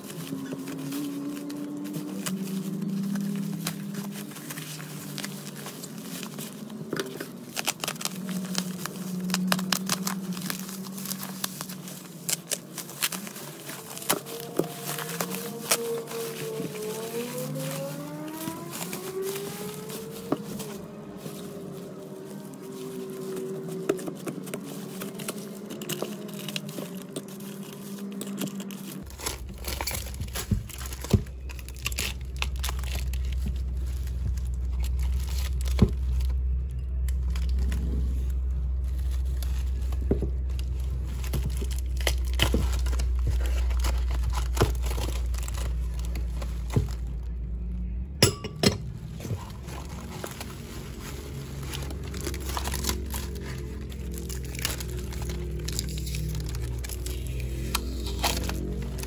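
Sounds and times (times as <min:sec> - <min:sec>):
scissors cutting paper: 0:00.0 - 0:35.9, 0:51.6 - 0:59.0
packing paper crinkling and tearing: 0:00.0 - 0:48.0, 0:48.8 - 0:59.0
low steady hum: 0:00.0 - 0:59.0
glass bowls clicking and knocking: 0:48.2 - 0:48.9.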